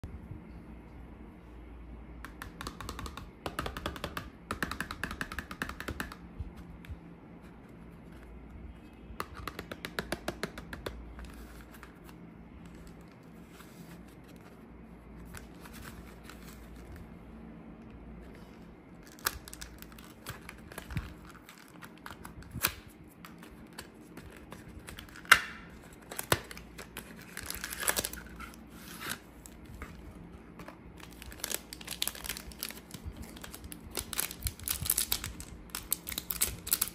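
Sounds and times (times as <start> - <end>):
plastic wrapper crinkling: 19.0 - 36.9.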